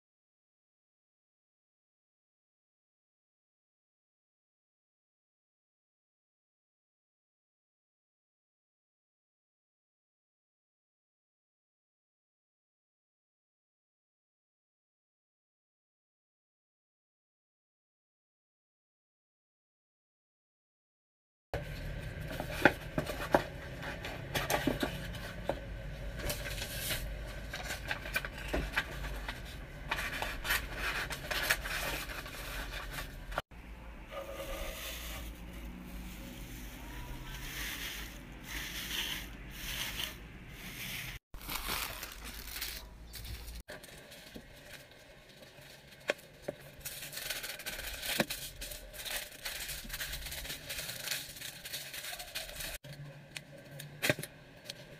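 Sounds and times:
scrapes and tearing: 34.1s - 44.9s, 46.7s - 52.8s
plastic packaging crinkling: 41.4s - 52.8s.

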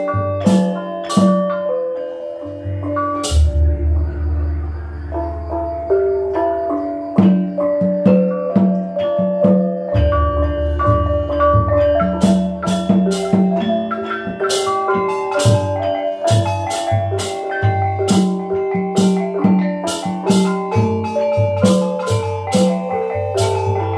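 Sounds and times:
hand drum strokes: 0.0s - 23.9s
deep hum: 2.6s - 6.3s
sharp bright strikes: 2.6s - 6.3s.

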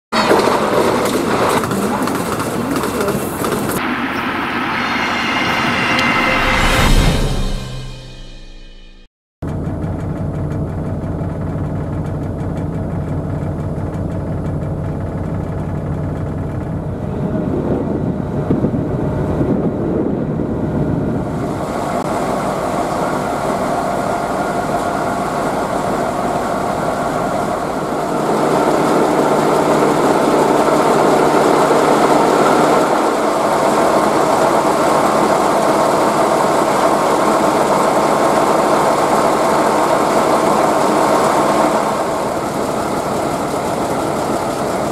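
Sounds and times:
diesel locomotive engine idling: 9.4s - 44.9s.

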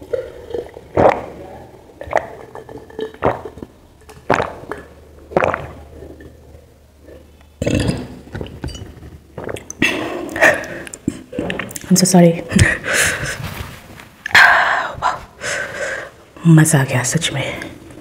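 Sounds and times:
person gulping drink: 0.0s - 11.9s
noisy breath out: 14.5s - 16.2s.

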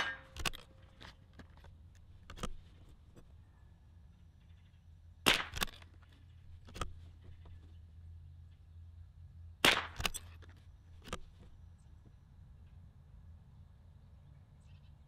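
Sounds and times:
rifle shots: 0.0s - 0.7s, 5.2s - 5.8s, 9.6s - 10.2s.

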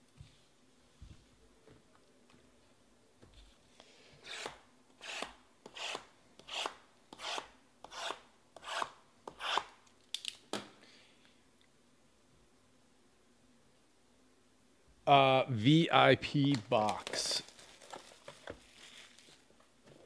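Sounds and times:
hand rubbing shrink-wrapped boxes: 16.5s - 19.6s.

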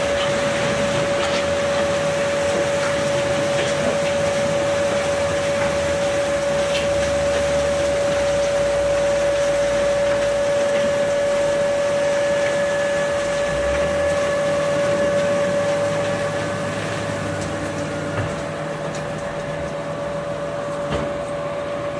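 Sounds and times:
concrete mixer whine: 0.0s - 21.9s.

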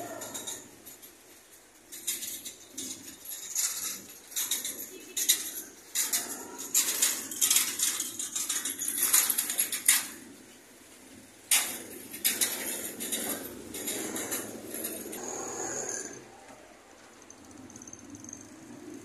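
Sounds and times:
metal utensils clinking on pans: 1.9s - 10.1s.

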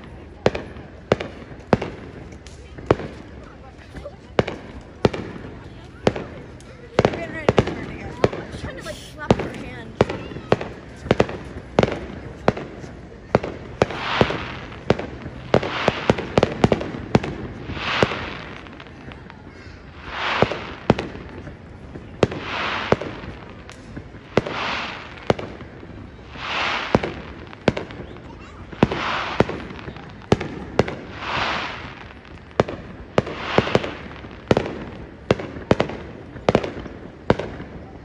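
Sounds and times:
firework bangs and pops: 0.0s - 38.0s
firework hiss: 6.9s - 12.8s, 13.6s - 19.3s, 19.9s - 21.6s, 22.2s - 36.0s.

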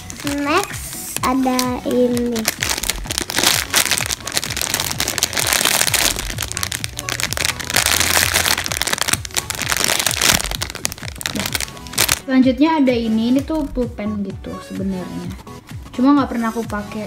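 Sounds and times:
plastic bag crinkling: 0.0s - 12.3s.

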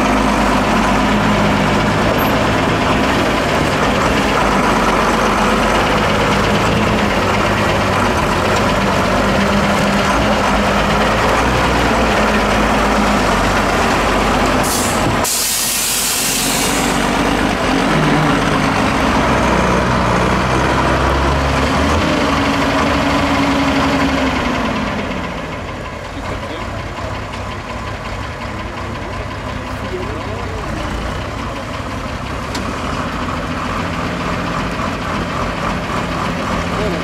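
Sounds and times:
diesel truck engine under load: 0.0s - 37.0s
air brake hiss: 14.6s - 17.0s.

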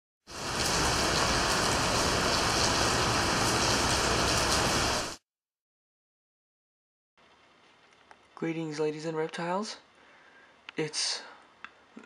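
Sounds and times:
heavy rain hissing: 0.3s - 5.2s.

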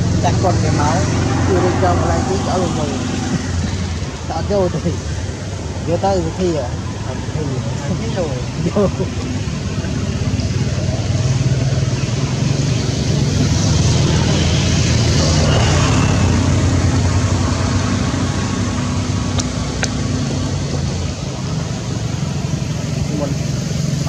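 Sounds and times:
low engine drone: 0.0s - 24.0s.

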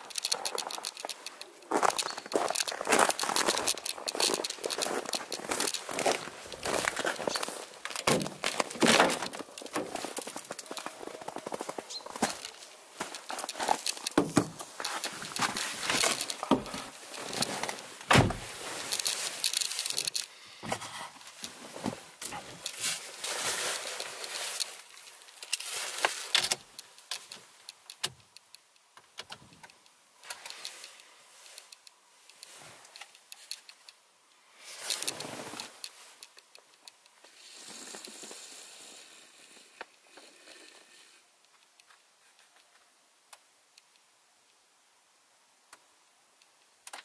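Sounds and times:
rustling and clicks in car: 0.0s - 23.0s.

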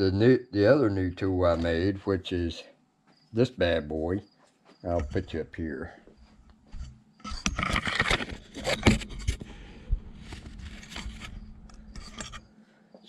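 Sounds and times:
faint steady hum: 0.0s - 13.0s
camera handling scraping and knocking: 6.7s - 9.5s, 10.1s - 12.5s.

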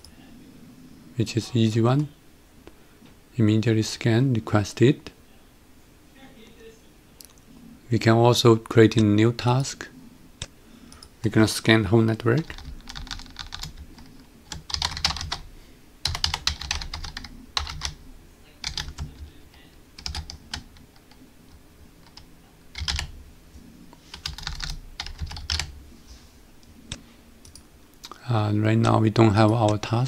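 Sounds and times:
computer keyboard typing: 12.1s - 18.0s, 18.6s - 23.1s, 24.1s - 25.8s, 27.4s - 27.6s.

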